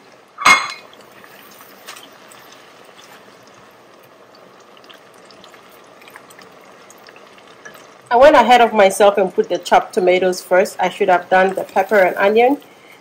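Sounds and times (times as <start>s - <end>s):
onions sizzling in oil: 0.0s - 13.0s
sharp metallic clank: 0.4s - 0.8s.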